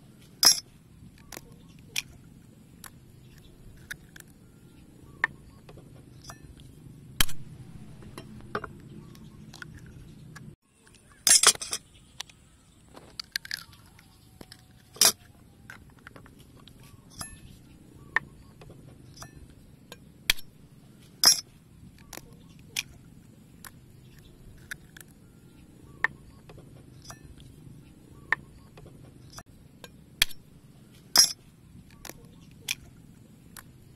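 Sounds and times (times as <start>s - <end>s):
eggshells cracking: 13.1s - 14.6s.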